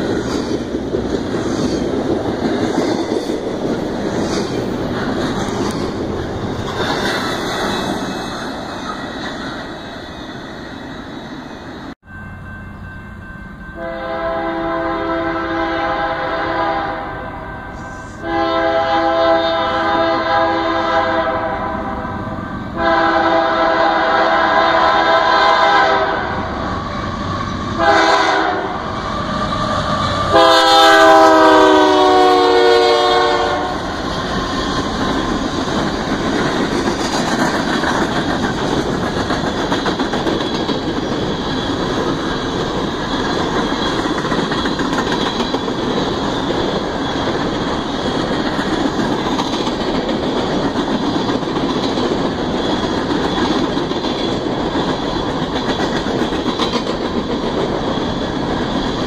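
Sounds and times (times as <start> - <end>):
train cars rumbling past: 0.0 - 59.0
locomotive air horn blasts: 13.8 - 22.2, 22.8 - 26.5, 27.2 - 33.9
wheels clicking over rail joints: 34.0 - 59.0.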